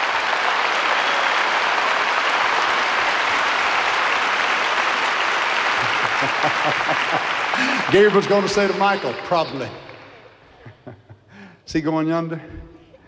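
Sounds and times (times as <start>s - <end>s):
crowd applauding: 0.0s - 10.8s.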